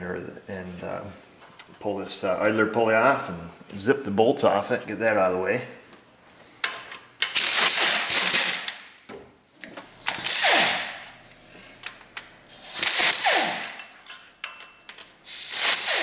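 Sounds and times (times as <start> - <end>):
air ratchet whine: 7.2 - 8.7, 10.0 - 10.9, 12.5 - 13.9, 15.2 - 16.0.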